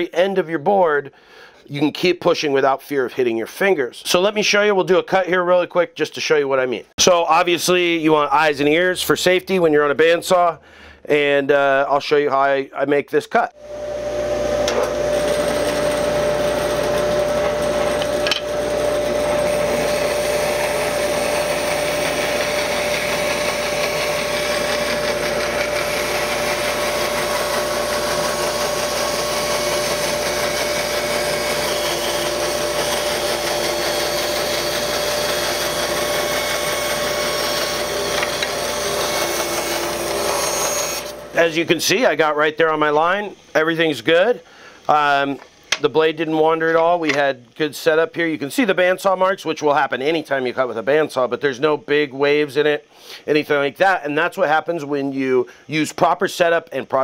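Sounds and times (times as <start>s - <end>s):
bandsaw cutting wood: 13.6s - 48.0s.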